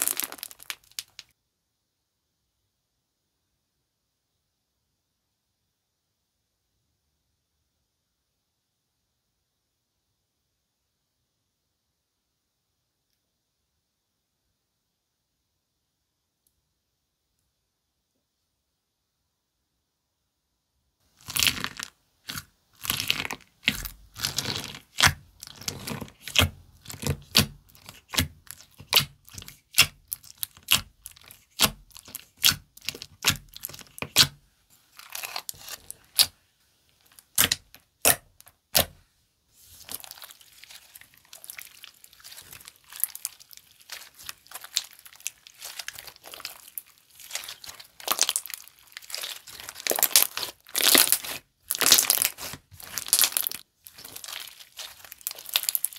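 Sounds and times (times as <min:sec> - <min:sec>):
slime clicking and popping: 0:00.0 - 0:01.2, 0:37.3 - 0:38.9, 0:39.9 - 0:55.9.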